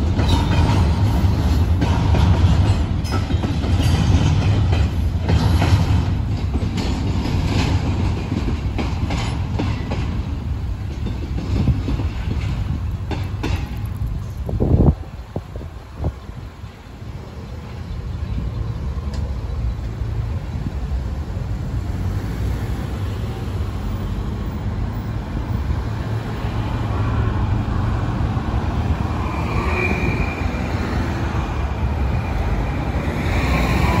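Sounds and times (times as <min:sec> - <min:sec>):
road traffic rumble: 0:00.0 - 0:34.0
short high squeal: 0:29.2 - 0:30.8.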